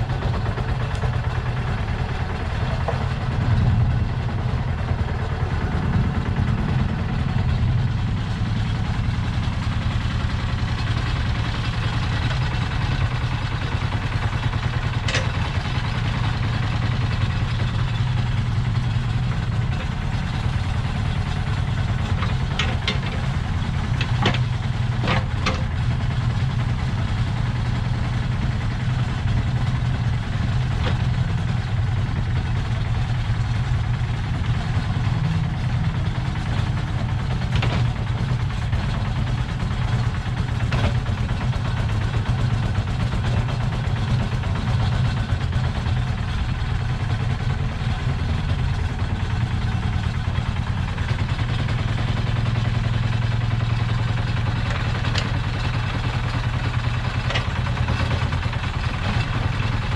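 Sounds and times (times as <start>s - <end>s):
diesel engine running: 0.0s - 59.9s
mini digger hydraulics: 9.4s - 27.8s.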